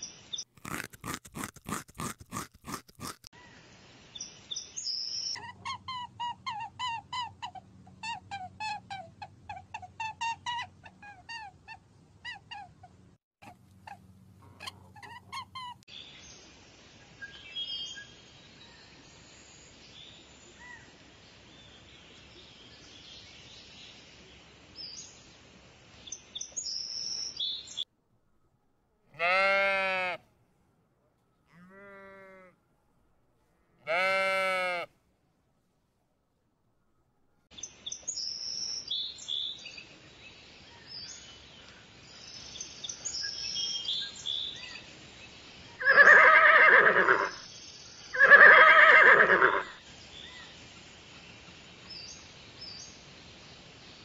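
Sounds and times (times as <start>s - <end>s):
outdoor ambience: 0.0s - 54.0s
sheep bleating: 29.2s - 30.2s, 31.5s - 32.6s, 33.8s - 34.9s.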